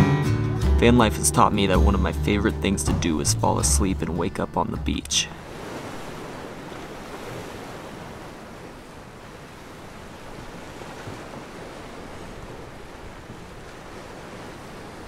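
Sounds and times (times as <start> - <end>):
surf washing on beach: 5.2 - 15.0.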